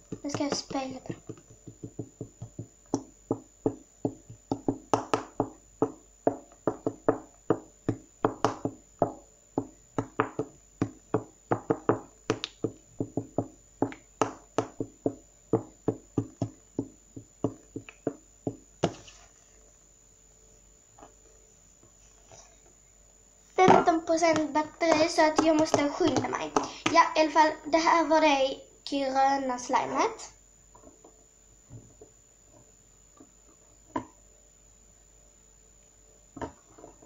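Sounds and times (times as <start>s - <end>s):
fingertips tapping slime: 0.0s - 19.1s, 24.2s - 27.0s.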